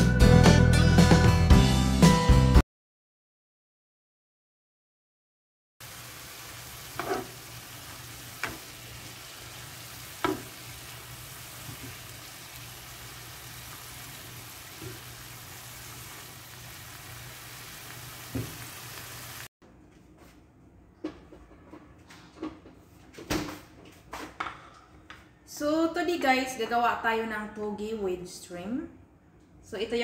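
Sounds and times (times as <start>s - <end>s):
food sizzling in a pan: 5.8s - 19.5s
spatula knocking against pan: 10.2s - 10.6s.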